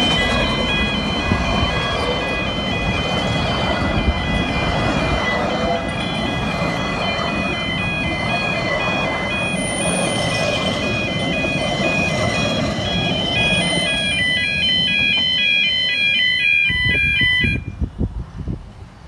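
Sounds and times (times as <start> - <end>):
level crossing alarm warbling: 0.0 - 17.8
railway carriages rumbling past: 0.0 - 19.0.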